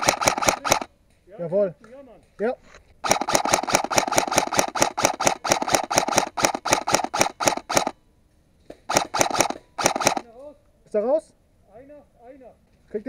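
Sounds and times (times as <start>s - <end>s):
airsoft rifle full-auto burst: 0.0s - 0.9s, 3.0s - 8.0s, 8.9s - 10.3s.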